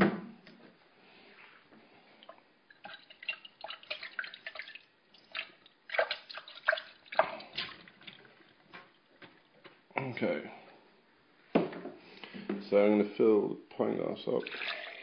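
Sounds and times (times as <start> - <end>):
water splashing in a glass: 2.7 - 9.0, 14.4 - 15.0.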